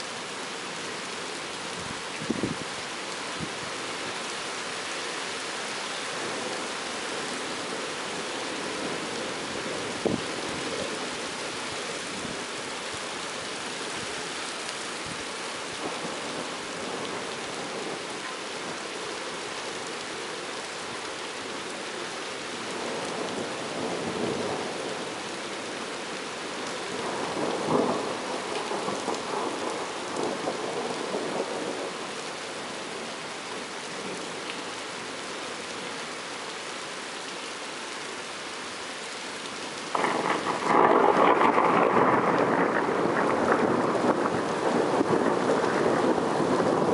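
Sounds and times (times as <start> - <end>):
steady rain falling: 0.0 - 46.9
thunder rumbling: 39.9 - 46.9.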